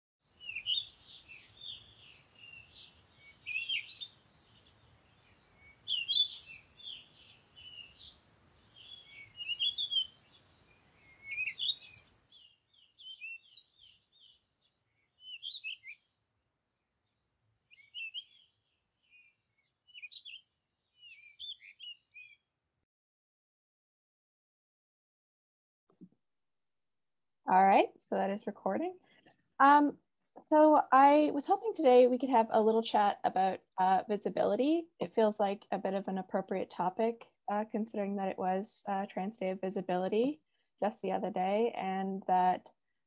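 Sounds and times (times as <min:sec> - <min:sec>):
songbirds chirping: 0:00.3 - 0:22.4.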